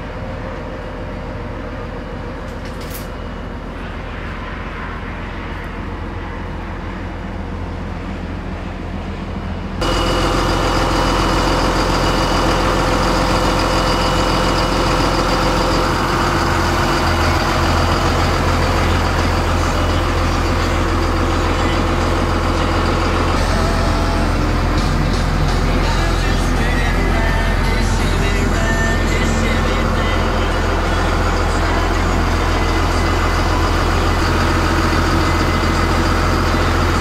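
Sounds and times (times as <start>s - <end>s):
engine running steadily: 0.0s - 37.0s.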